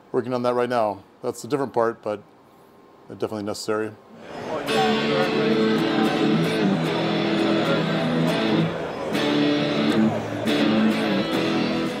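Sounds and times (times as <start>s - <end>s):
electric guitar strumming chords: 4.6s - 12.0s.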